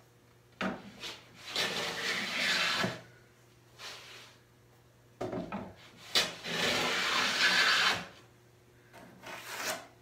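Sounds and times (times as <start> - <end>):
hand plane shaving wood: 1.4 - 3.0, 6.2 - 8.2, 9.2 - 9.9.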